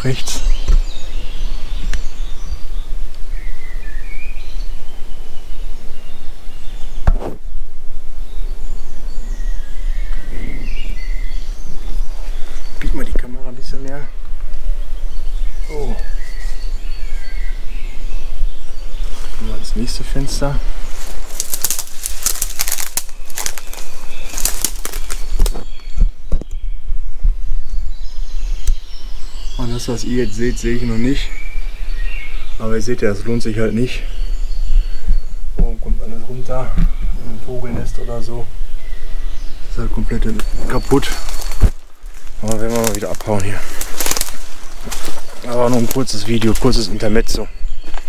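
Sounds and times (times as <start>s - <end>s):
birds chirping: 0.0s - 48.0s
sharp knock: 7.0s - 7.4s.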